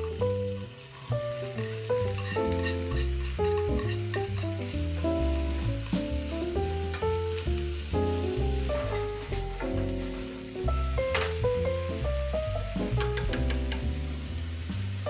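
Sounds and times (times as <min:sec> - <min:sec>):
background music with bass line: 0:00.0 - 0:15.0
vegetables sizzling in a frying pan: 0:00.0 - 0:15.0
chopsticks clicking on pan: 0:13.0 - 0:13.9.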